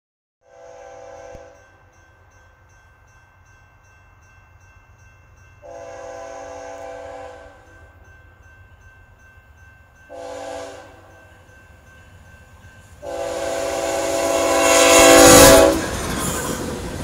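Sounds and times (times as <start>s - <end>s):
distant locomotive air horn: 0.4s - 1.6s, 5.6s - 7.8s, 10.1s - 11.2s, 13.0s - 15.9s.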